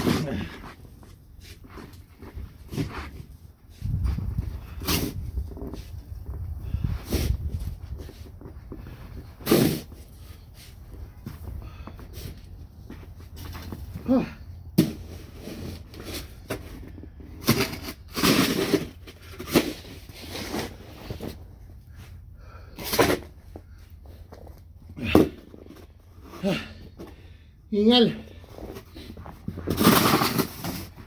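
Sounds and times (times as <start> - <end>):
snow shovel scraping snow: 9.4 - 10.0.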